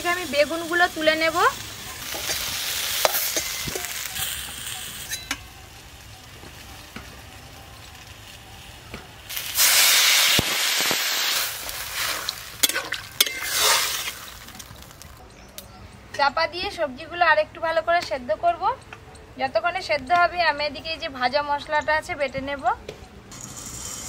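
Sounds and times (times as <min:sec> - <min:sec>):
water sizzling in hot oil: 0:00.0 - 0:15.1.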